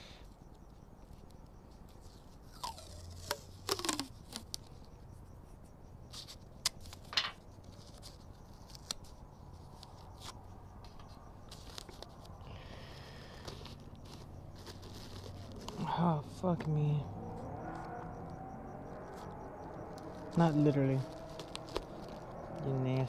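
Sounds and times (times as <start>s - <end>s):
tape ripping and crackling: 2.0s - 4.7s, 13.4s - 15.8s, 19.9s - 22.6s.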